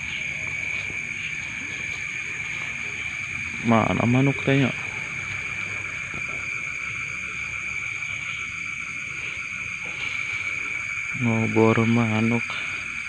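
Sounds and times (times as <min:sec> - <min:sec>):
crickets trilling: 0:00.0 - 0:13.0.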